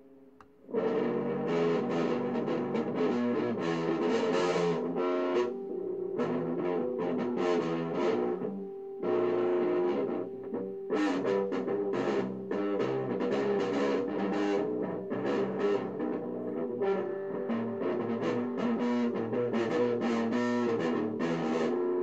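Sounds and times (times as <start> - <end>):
electric guitar picked notes: 0.0 - 22.0.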